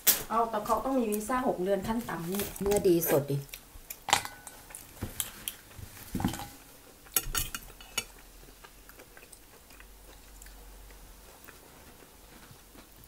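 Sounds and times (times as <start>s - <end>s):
faint chewing: 2.0s - 6.0s, 6.7s - 13.0s.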